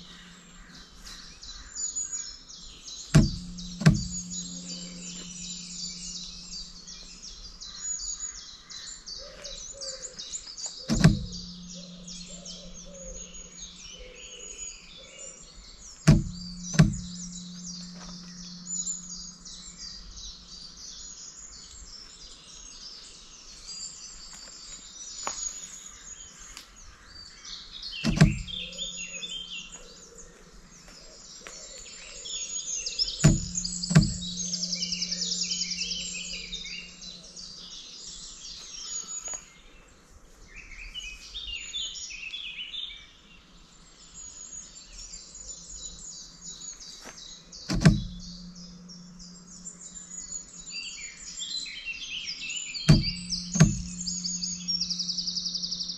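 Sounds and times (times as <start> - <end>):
low steady hum: 0.0 - 9.0, 10.3 - 22.7, 28.0 - 38.5, 45.2 - 55.9
bird trill: 0.0 - 22.7, 26.9 - 39.6, 44.1 - 55.9
birds chirping and singing: 0.0 - 55.9
sharp knocks: 3.1 - 6.6, 10.9 - 12.9, 16.0 - 19.8, 28.0 - 28.7, 33.2 - 37.2, 47.7 - 49.6, 52.9 - 55.3.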